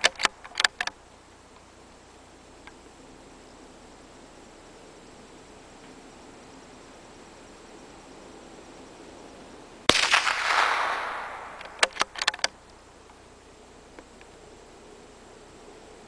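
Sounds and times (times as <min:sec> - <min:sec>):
rifle bolt metallic clicks: 0:00.0 - 0:01.0, 0:10.1 - 0:12.8
rifle shot with echo: 0:09.9 - 0:12.3.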